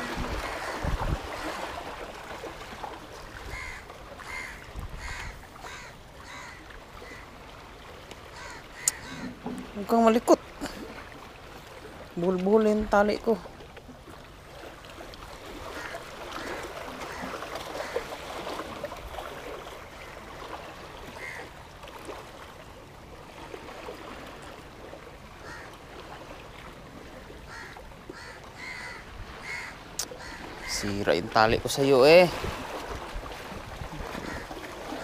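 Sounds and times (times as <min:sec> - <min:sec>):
waves washing against rocks: 0:00.0 - 0:06.5, 0:28.2 - 0:35.0
faint bird calls: 0:03.5 - 0:07.3, 0:08.3 - 0:09.4, 0:27.5 - 0:30.8.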